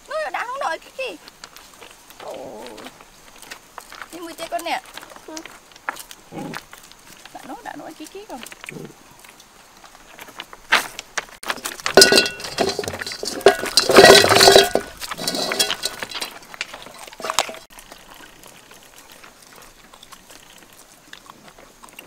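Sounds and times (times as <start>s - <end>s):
metal wok clanking on stones: 10.7s - 17.7s.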